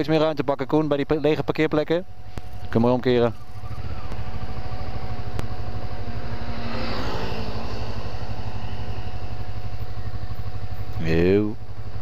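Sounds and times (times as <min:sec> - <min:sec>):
motorcycle engine at low revs: 0:00.0 - 0:12.0.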